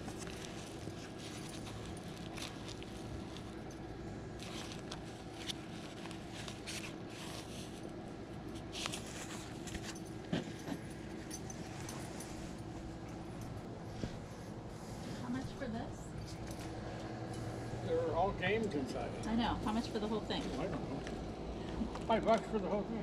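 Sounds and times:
binder rustling and scraping: 0.0 - 3.7, 4.4 - 16.8
low outdoor rumble: 0.0 - 23.0.

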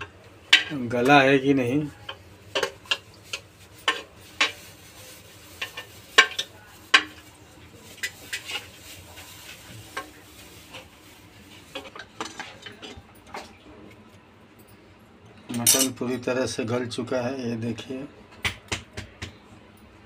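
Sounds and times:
steel ladle scraping a pot: 2.5 - 7.3, 8.0 - 13.0.

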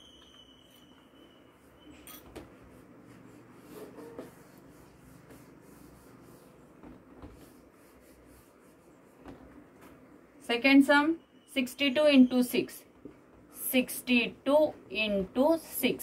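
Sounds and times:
cloth rubbing whiteboard: 2.4 - 10.0.

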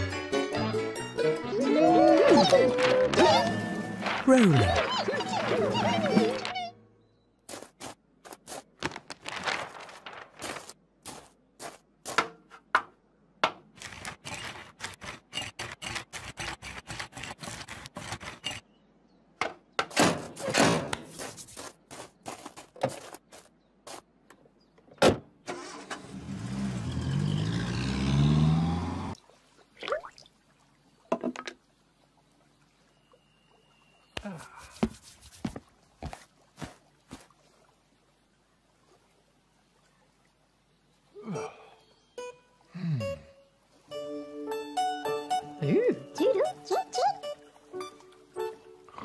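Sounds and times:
van engine starting and revving: 25.5 - 29.2.

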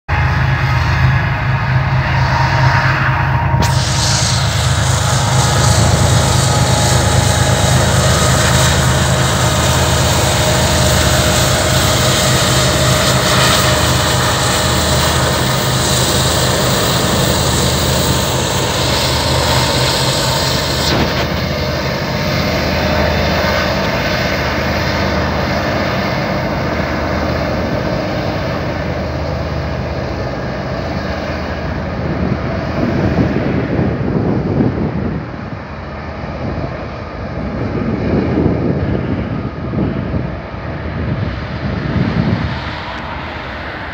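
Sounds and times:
locomotive engine drone: 0.1 - 43.9
high hiss: 3.6 - 22.0.

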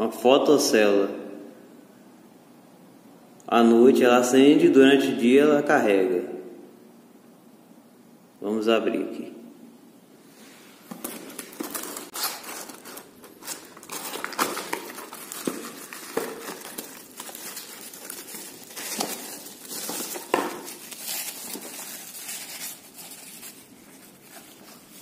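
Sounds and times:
cardboard rustling and scraping: 10.5 - 25.0
plastic wrap crinkling: 10.8 - 25.0.

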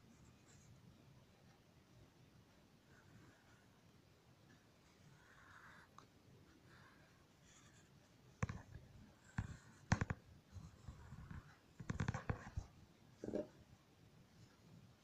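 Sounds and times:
pencil scratching on paper: 4.9 - 12.7
pencils clicking and tapping: 9.4 - 10.2, 11.2 - 12.7.

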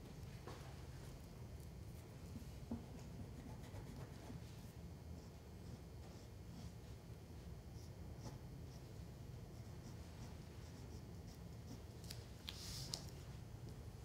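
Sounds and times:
low steady hum: 0.0 - 14.0
pencil scratching on paper: 9.5 - 11.9.

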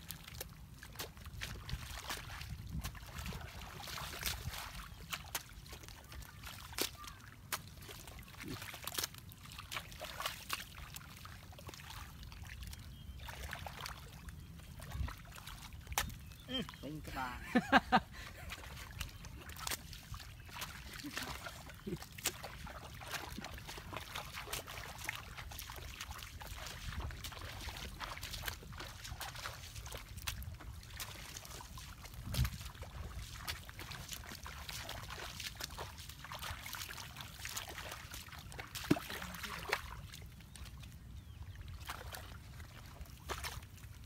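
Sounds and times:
water sloshing and splashing: 0.0 - 44.0
hoe chopping wet mud: 0.1 - 11.0, 15.6 - 16.6, 18.5 - 39.9, 43.2 - 43.6.

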